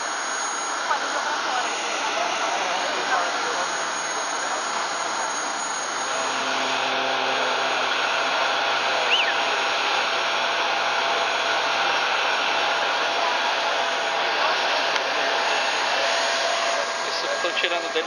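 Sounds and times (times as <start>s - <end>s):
rushing hiss with high whine: 0.0s - 18.0s
low hum: 4.5s - 11.2s.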